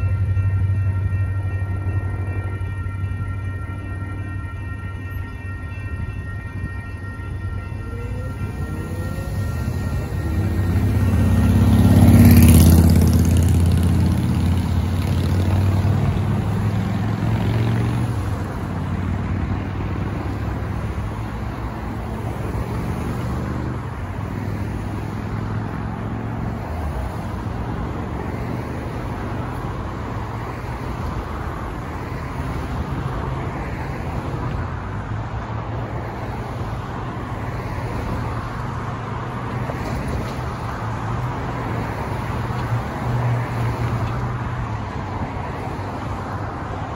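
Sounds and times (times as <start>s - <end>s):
road traffic: 0.0s - 46.9s
vehicle passing close: 7.8s - 25.4s.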